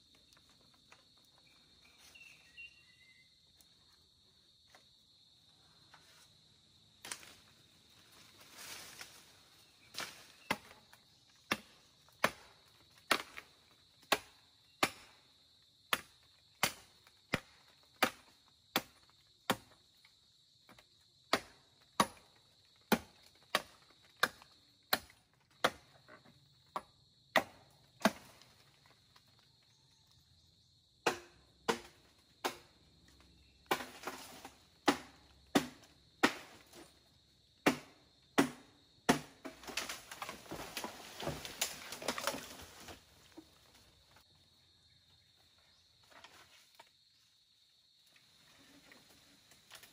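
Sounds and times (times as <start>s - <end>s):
faint insect drone: 0.0s - 49.9s
blade chopping bamboo: 13.1s - 13.4s, 14.1s - 15.2s, 15.9s - 19.7s, 31.0s - 32.7s, 33.7s - 36.6s, 37.6s - 42.5s.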